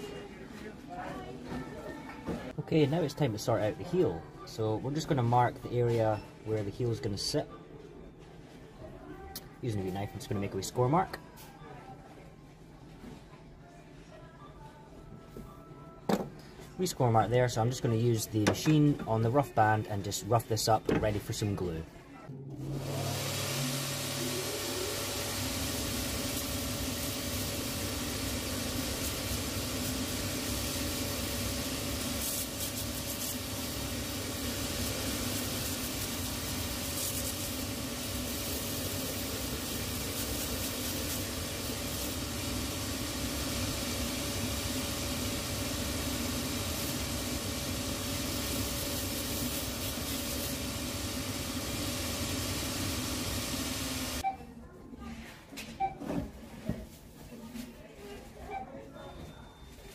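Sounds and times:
sanding machine hum and hiss: 23.1s - 54.2s.

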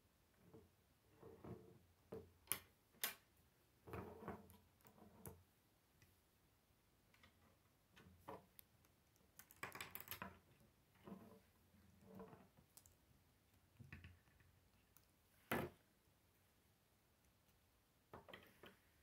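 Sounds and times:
plastic pieces clicking together: 9.0s - 10.4s.

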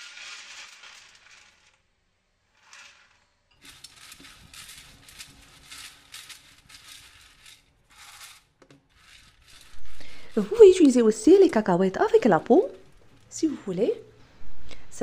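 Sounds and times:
peanuts clicking as spread: 2.6s - 13.5s.

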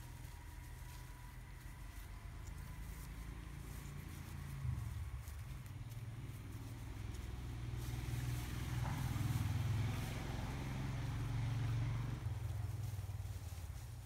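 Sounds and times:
passing vehicle engine hum: 0.0s - 14.0s.

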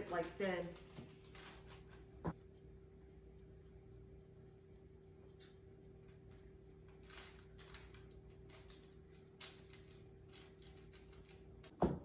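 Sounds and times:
plastic wrap rustling: 0.0s - 2.3s, 6.9s - 11.7s
steady low hum: 0.0s - 12.0s.

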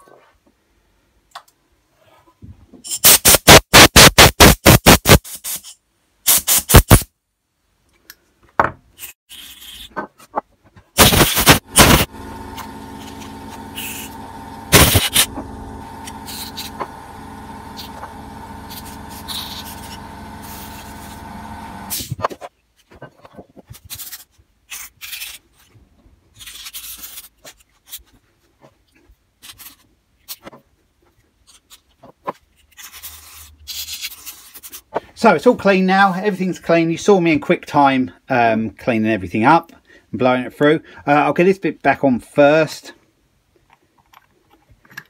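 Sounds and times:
steady motor hum: 11.4s - 22.2s.

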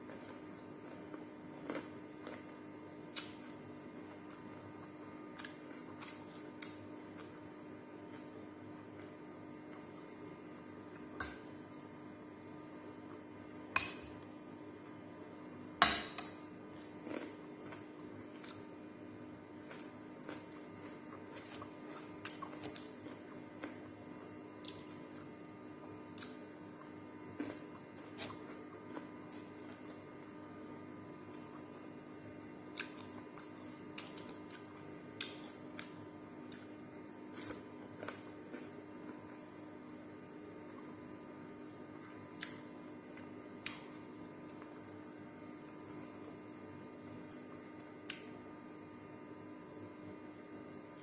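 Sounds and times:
faint steady hum: 0.0s - 51.0s
chewing: 0.1s - 3.4s, 19.6s - 23.8s
metal spoon clinking on glass bowl: 13.8s - 14.2s.

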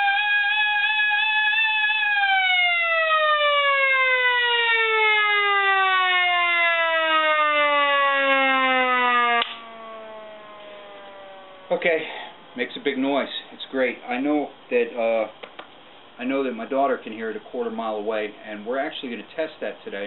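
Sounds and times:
hand-cranked air raid siren: 0.0s - 11.8s.

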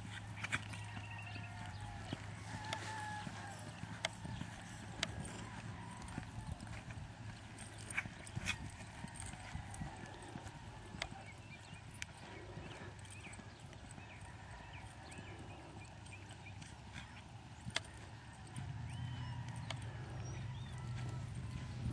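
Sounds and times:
hoofbeats on loose dirt: 0.0s - 21.9s.

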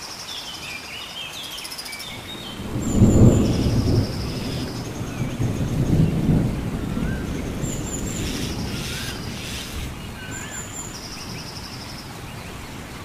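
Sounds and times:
insects buzzing: 2.1s - 12.4s
low rumbling on microphone: 2.2s - 13.0s
bird whistling: 8.1s - 10.9s.

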